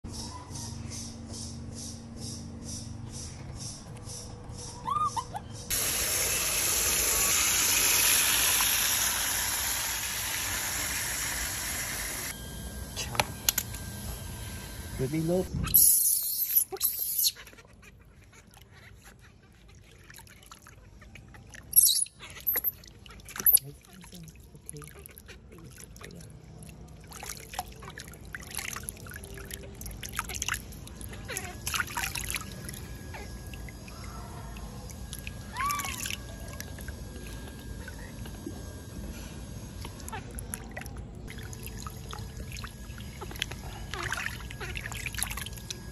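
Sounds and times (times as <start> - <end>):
water splashing in a tub: 19.8 - 38.4, 39.8 - 45.9.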